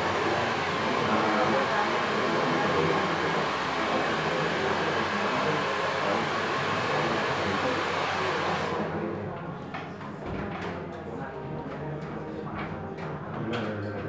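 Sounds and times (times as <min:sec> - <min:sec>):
hair dryer running: 0:00.0 - 0:09.1.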